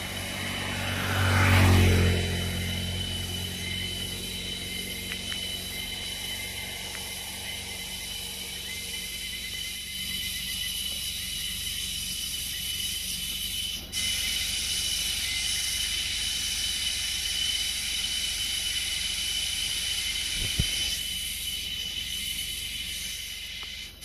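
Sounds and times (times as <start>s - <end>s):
low rumble: 0.0s - 12.6s
cicada and insect chorus: 0.0s - 24.0s.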